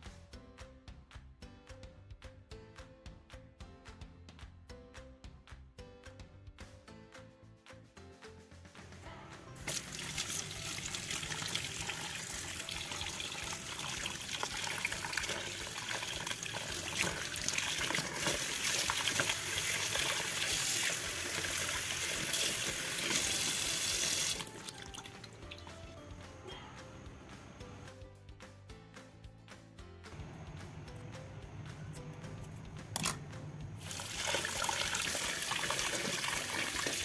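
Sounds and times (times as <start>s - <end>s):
tap water splashing over shells: 9.6s - 25.6s, 33.0s - 33.2s.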